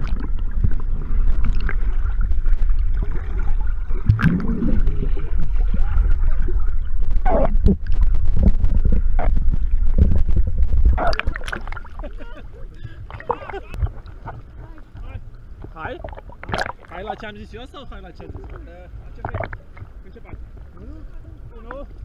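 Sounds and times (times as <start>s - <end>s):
water gurgling and bubbling: 0.0s - 17.3s, 18.2s - 20.1s
underwater low rumble: 0.0s - 22.0s.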